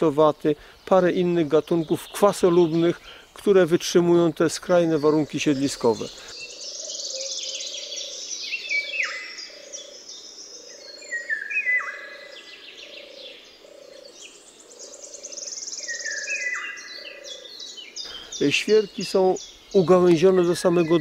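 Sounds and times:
songbirds singing: 0.0s - 21.0s.

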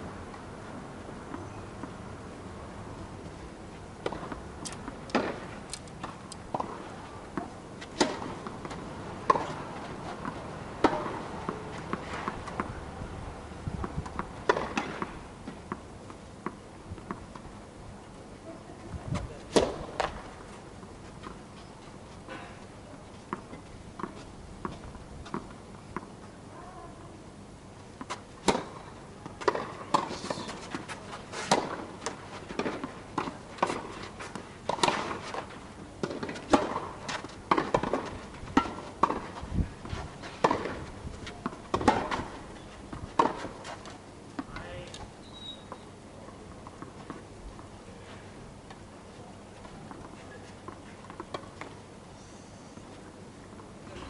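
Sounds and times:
tennis ball bouncing: 4.0s - 5.4s, 6.0s - 12.8s, 13.8s - 17.3s, 19.5s - 20.2s, 28.0s - 44.7s
racket hitting tennis ball: 4.0s - 12.8s, 13.8s - 15.8s, 19.5s - 20.2s, 28.0s - 44.7s.

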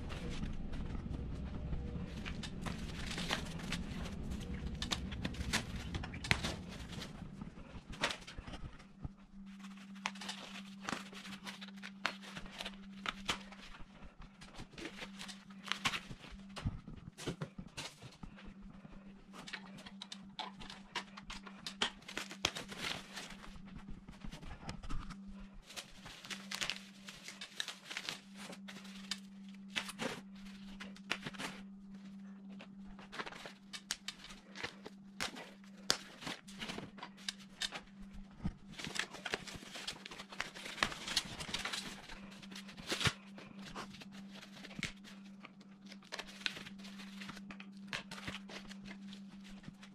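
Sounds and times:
steady low hum: 0.0s - 49.9s
foam wrap rustling and tearing: 2.1s - 7.2s, 9.4s - 13.8s, 19.5s - 23.8s, 25.6s - 31.6s, 38.6s - 49.9s.

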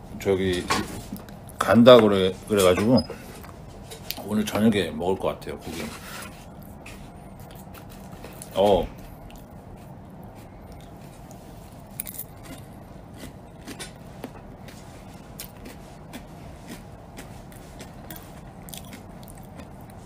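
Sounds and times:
low background hum: 0.0s - 20.0s
person chewing: 6.5s - 20.0s.

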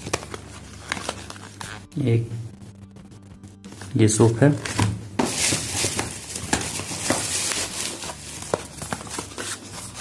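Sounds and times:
cardboard boxes rustling: 4.6s - 10.0s.

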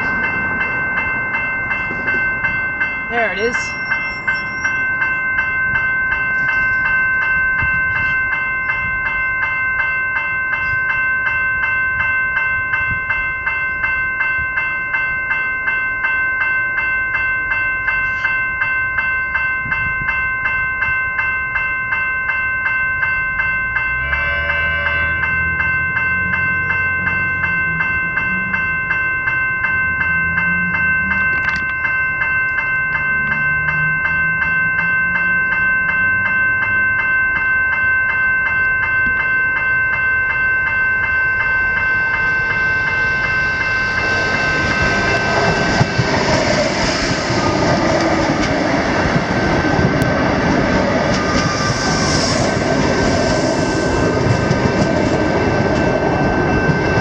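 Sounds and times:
level crossing bells ringing: 0.0s - 57.0s
train rumble: 0.0s - 57.0s
train horn blast: 24.0s - 25.3s.

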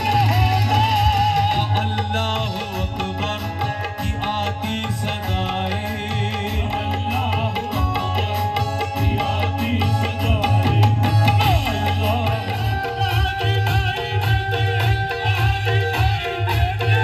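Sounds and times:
tabla drumming: 0.0s - 17.0s.

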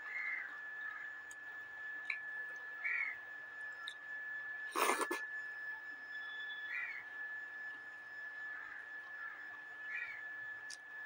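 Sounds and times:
steady high-pitched whine: 0.0s - 11.0s
eating noise: 4.7s - 5.2s.

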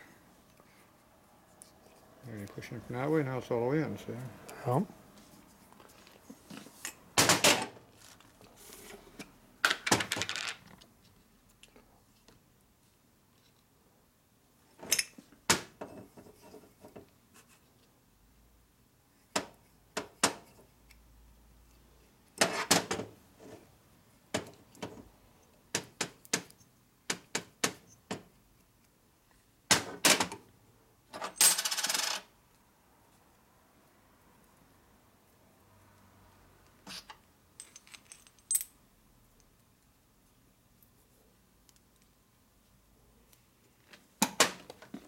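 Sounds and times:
metal parts clinking on workbench: 37.6s - 38.8s.

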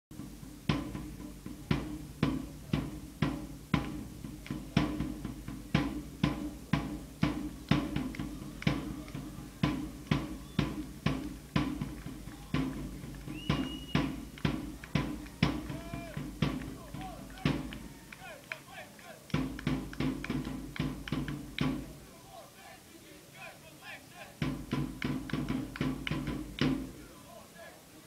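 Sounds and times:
drum beaten in steady rhythm: 0.1s - 18.6s, 19.2s - 22.1s, 24.3s - 27.0s
short high whistle: 10.2s - 10.8s, 13.3s - 14.2s
fans chanting: 15.1s - 19.3s, 21.9s - 24.4s, 26.9s - 28.0s.

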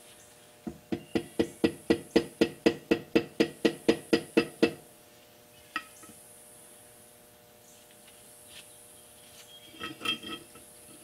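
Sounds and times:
tapping on concrete block: 0.7s - 4.8s.

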